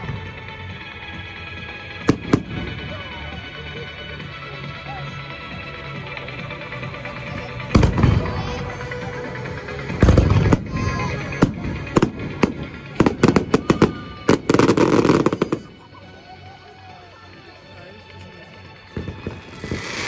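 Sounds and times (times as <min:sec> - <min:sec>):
firework crackling volley: 0:00.0 - 0:16.2, 0:18.0 - 0:20.0
music: 0:00.0 - 0:20.0
firework shells bursting: 0:19.0 - 0:20.0.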